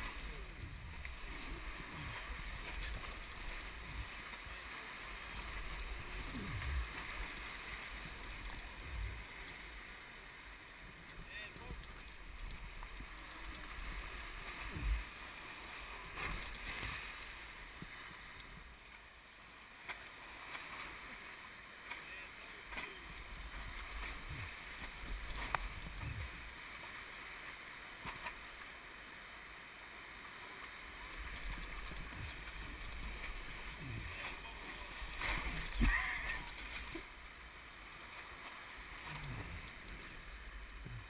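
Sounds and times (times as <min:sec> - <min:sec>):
whitewater rapids rushing: 0:31.1 - 0:37.0.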